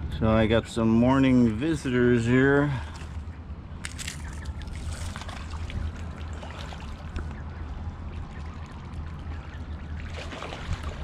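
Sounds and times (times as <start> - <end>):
steady low hum: 0.0 - 11.0
ducks splashing in water: 4.0 - 11.0.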